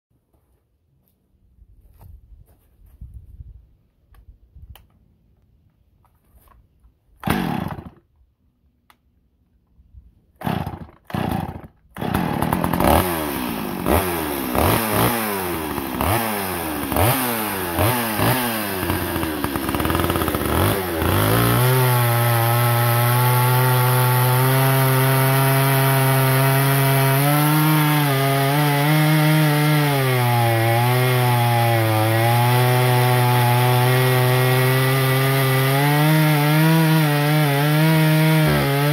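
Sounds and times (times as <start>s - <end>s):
chainsaw engine revving: 7.2s - 8.0s, 10.4s - 38.9s
chainsaw pull cord: 7.2s - 8.0s, 10.4s - 38.9s
chainsaw cutting wood: 7.2s - 8.1s, 10.4s - 38.9s.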